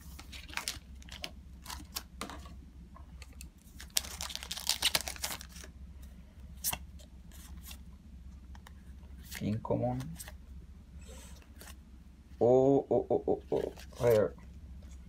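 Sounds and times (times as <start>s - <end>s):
wrapper and cards rustling: 0.0s - 2.0s, 3.6s - 5.7s, 13.6s - 14.4s
foil wrapper tearing and crinkling: 0.3s - 2.0s, 3.8s - 5.7s.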